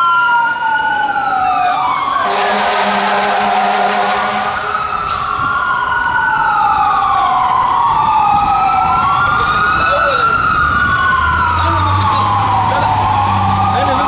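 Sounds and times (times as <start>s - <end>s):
fire truck siren wailing: 0.0s - 14.0s
deep horn blast: 2.2s - 5.2s.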